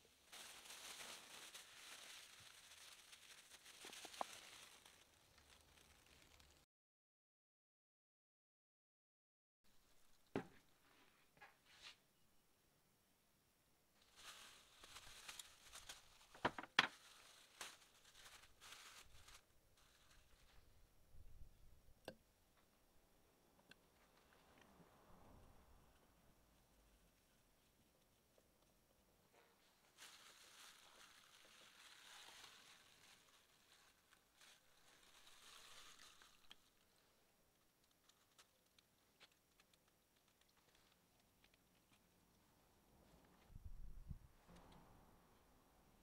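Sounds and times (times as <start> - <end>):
plastic bag rustling: 0.0 - 6.6, 14.0 - 20.8, 29.3 - 37.0.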